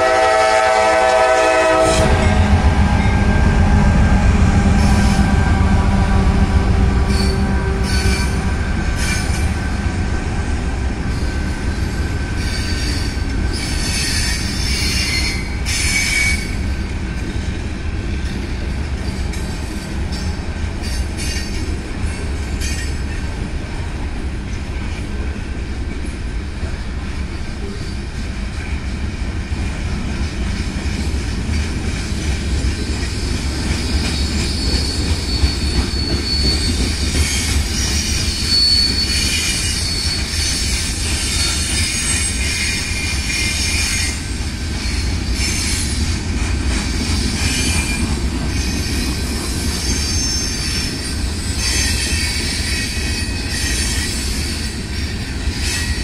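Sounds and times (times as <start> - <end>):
train horn: 0.0 - 9.5
freight train rumbling past: 0.0 - 56.0
train cars clanking: 0.0 - 56.0
wheel squeals: 33.9 - 44.2.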